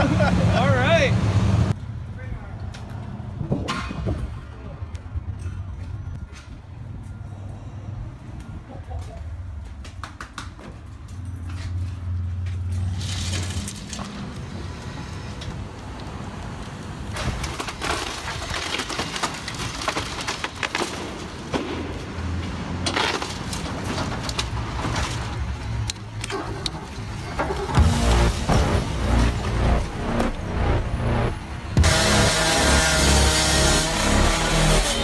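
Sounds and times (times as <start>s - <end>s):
structure crunching and cracking: 12.8s - 14.6s, 15.7s - 32.1s
falling debris: 17.0s - 25.7s
excavator engine running: 26.3s - 35.0s.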